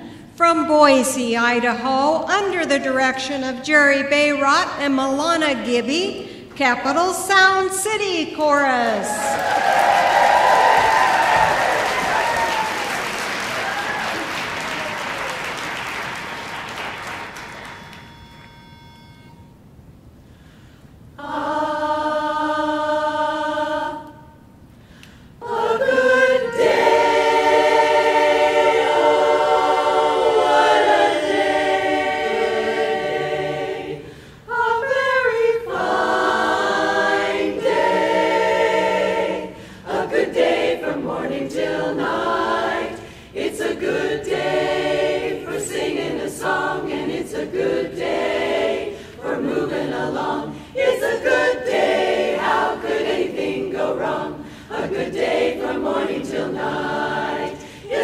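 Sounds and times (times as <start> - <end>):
women's chorus singing a cappella: 0.0 - 14.7, 21.2 - 24.5, 25.1 - 58.0.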